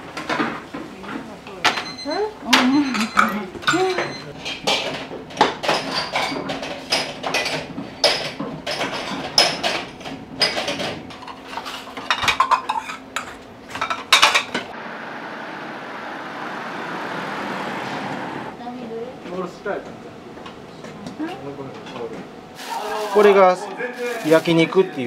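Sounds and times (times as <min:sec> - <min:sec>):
dishes clinking and clattering: 0:00.1 - 0:14.7
steady street hum: 0:14.7 - 0:19.2.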